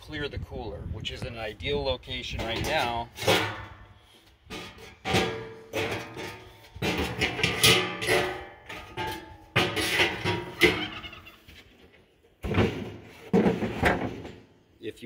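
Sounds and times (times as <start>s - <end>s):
metal pans clanking and rattling: 2.2s - 11.3s, 12.4s - 14.5s.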